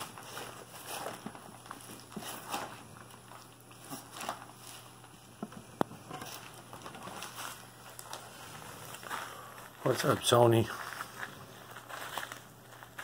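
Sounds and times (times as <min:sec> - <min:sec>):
puppies rustling in wood shavings: 0:06.1 - 0:13.0.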